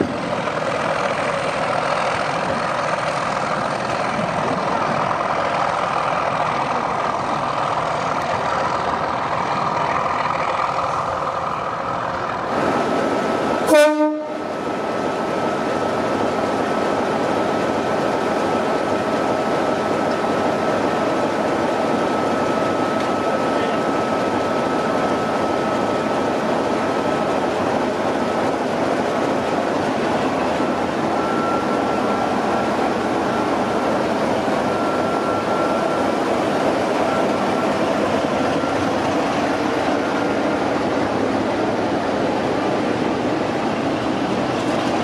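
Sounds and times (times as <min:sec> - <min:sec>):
diesel locomotive engine running: 0:00.0 - 0:45.0
train horn toot: 0:13.7 - 0:14.5.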